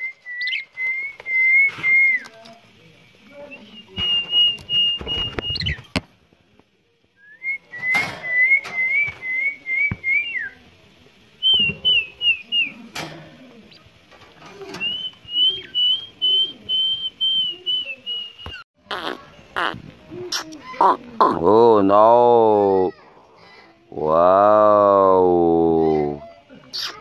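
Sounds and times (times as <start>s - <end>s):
warbling whistles: 14.8s - 18.6s.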